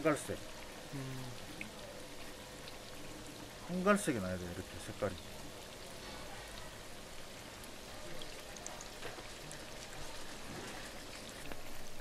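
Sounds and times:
doughnuts sizzling in hot oil: 0.0 - 12.0
oil popping: 0.0 - 12.0.

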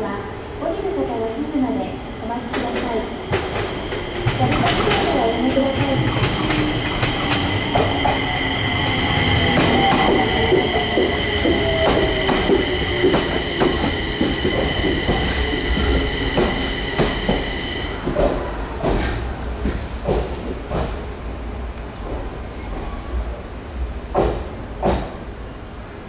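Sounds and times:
wheels clicking over rail joints: 2.5 - 8.2
train whine falling in pitch: 2.5 - 18.4
wheel squeal: 5.9 - 17.9.

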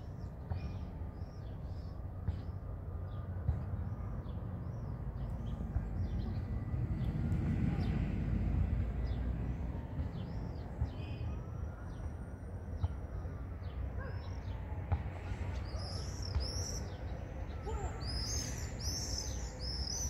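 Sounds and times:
low outdoor background rumble: 0.0 - 20.0
small birds chirping: 13.6 - 20.0.

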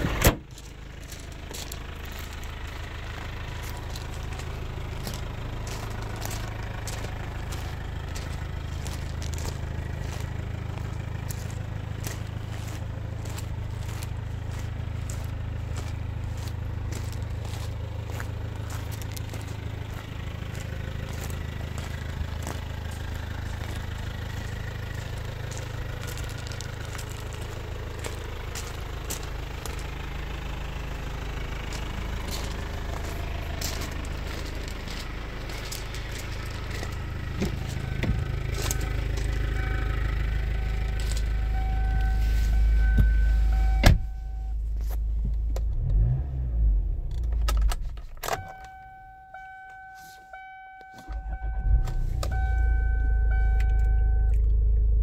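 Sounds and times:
car engine idling: 0.0 - 55.0
footsteps on gravel: 0.4 - 46.2, 49.6 - 53.6.

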